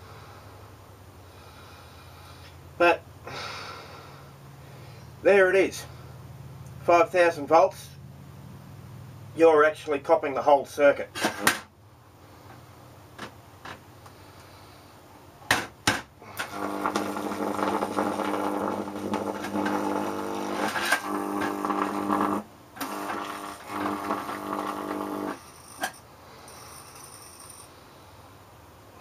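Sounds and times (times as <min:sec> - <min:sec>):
electric arc buzzing: 0:16.2 - 0:25.9.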